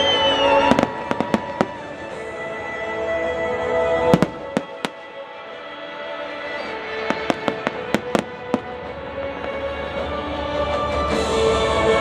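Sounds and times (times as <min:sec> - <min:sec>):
music playing: 0:00.0 - 0:12.0
firework shells bursting: 0:07.1 - 0:09.8.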